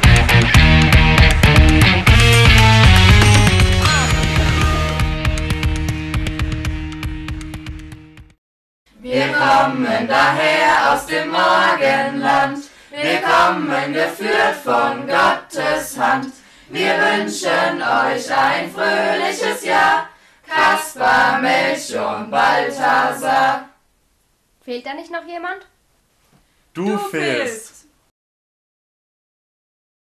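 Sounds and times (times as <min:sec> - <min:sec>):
music track: 0:00.0 - 0:08.3
group singing unaccompanied: 0:09.0 - 0:23.8.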